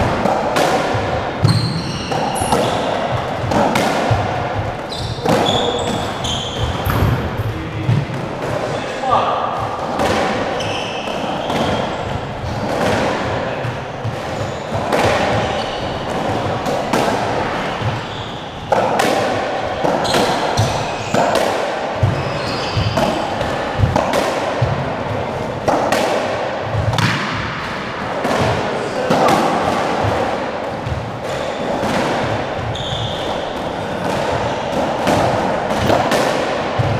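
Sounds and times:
squash ball hits: 0.0s - 36.9s
shoes squeaking on floor: 1.4s - 3.6s, 4.6s - 7.9s, 10.4s - 12.6s, 13.9s - 16.6s, 17.4s - 18.8s, 19.7s - 21.4s, 22.0s - 24.0s, 32.6s - 35.2s.

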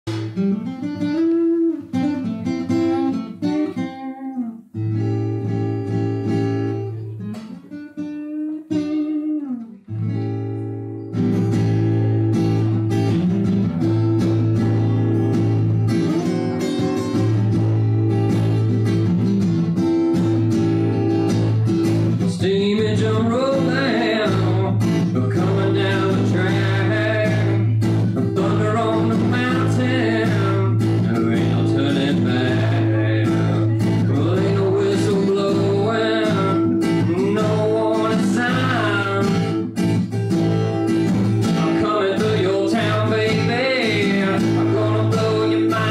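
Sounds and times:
acoustic guitar: 0.0s - 45.9s
man singing: 22.2s - 39.8s, 41.4s - 45.9s.

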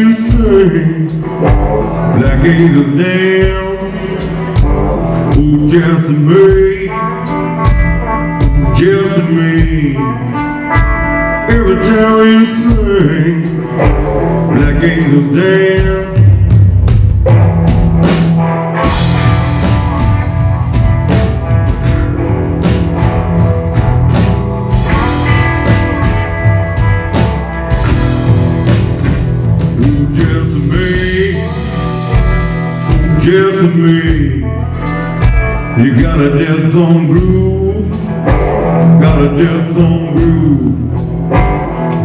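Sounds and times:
male voice singing: 0.0s - 7.5s, 8.4s - 10.6s, 11.4s - 16.6s, 29.7s - 34.9s, 35.7s - 38.2s, 38.8s - 41.0s
blues-rock band playing: 0.0s - 42.0s.

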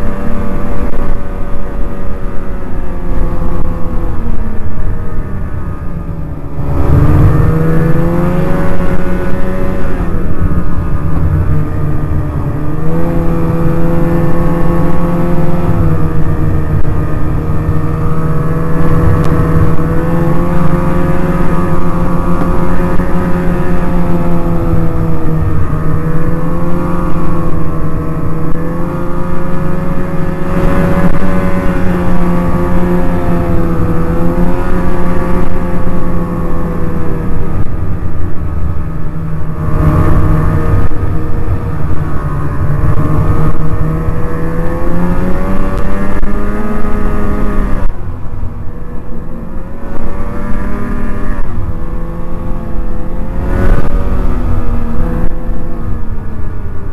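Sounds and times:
snowmobile engine running: 0.0s - 56.9s.

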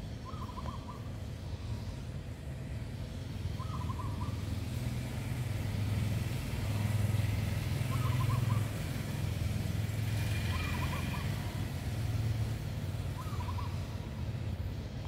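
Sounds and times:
low engine or traffic rumble: 0.0s - 15.0s
bird call: 0.2s - 1.1s, 13.2s - 13.9s.

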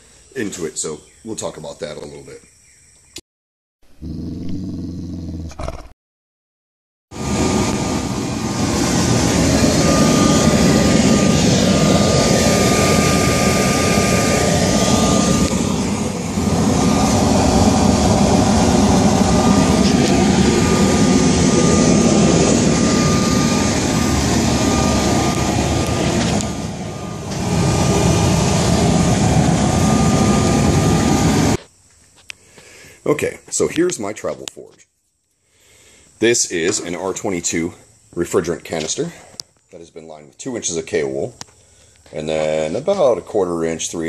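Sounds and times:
blower whine: 7.1s - 32.7s
forge burner roaring: 7.2s - 31.6s.

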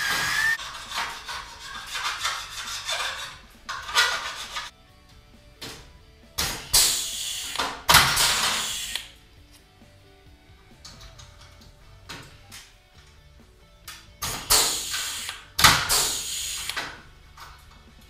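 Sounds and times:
rivet gun strokes: 0.0s - 4.7s
background music: 0.0s - 18.0s
air hissing: 6.4s - 9.2s, 14.2s - 17.1s.

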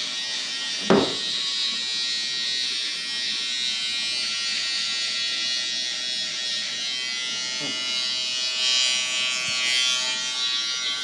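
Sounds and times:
electric shaver buzzing: 0.0s - 11.0s
thump: 0.8s - 1.3s.

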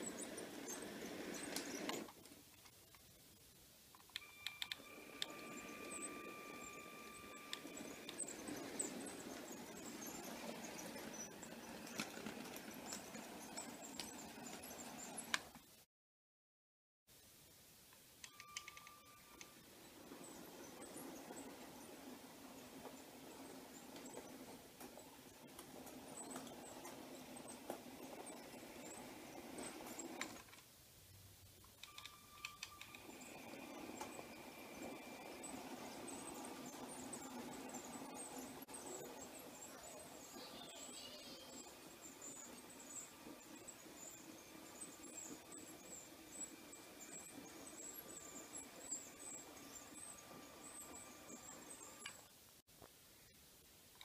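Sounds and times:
toy train wheels rumbling: 0.0s - 2.4s, 4.1s - 15.6s, 18.2s - 30.6s, 31.8s - 52.3s
high squeaks: 4.2s - 15.3s.

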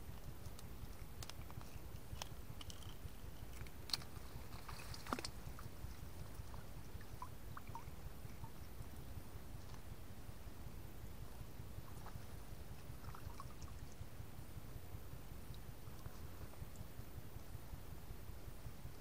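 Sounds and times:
net clicks and rustles: 0.1s - 6.6s.

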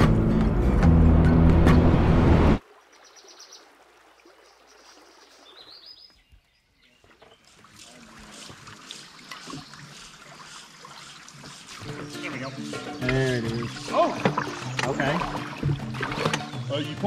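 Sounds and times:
music: 0.0s - 2.6s, 11.8s - 17.0s
water trickling and lapping: 2.6s - 17.0s
bird trill: 2.9s - 3.6s, 8.9s - 15.6s.

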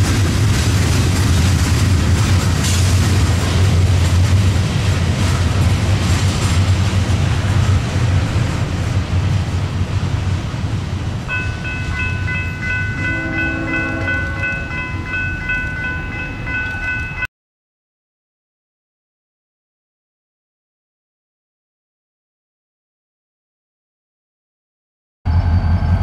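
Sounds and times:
freight train rumbling past: 0.0s - 17.3s, 25.3s - 26.0s
bell ringing: 11.3s - 17.3s
distant train horn blast: 13.0s - 14.8s.

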